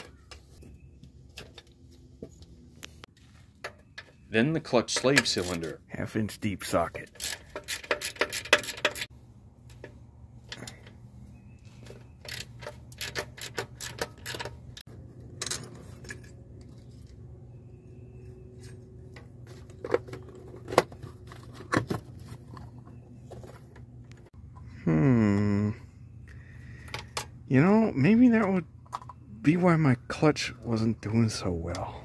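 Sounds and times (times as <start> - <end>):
ratchet clicking: 7.1 - 9.1.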